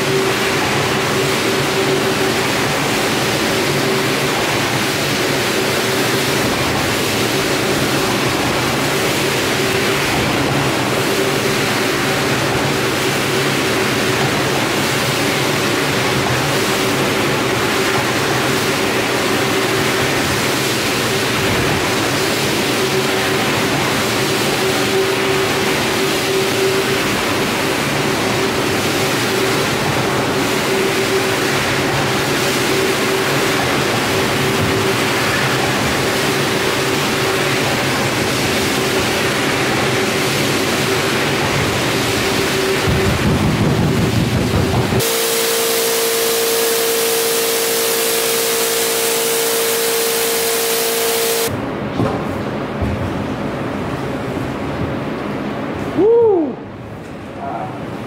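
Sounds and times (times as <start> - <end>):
rotary floor scrubber humming: 0.0 - 52.5.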